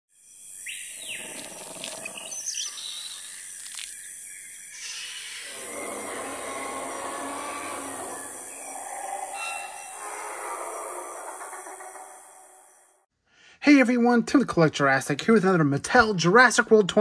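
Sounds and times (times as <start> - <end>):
chirping bird calls: 0.6 - 12.9.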